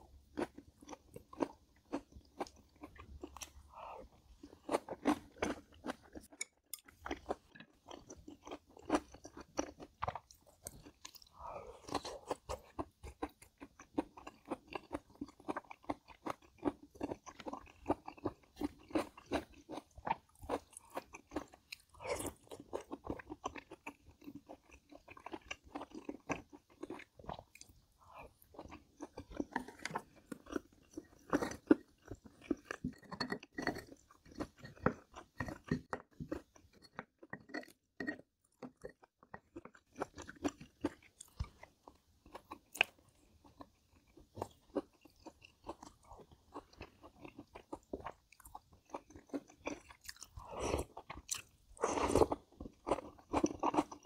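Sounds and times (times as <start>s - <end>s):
person chewing crunchy food: 0.0s - 54.0s.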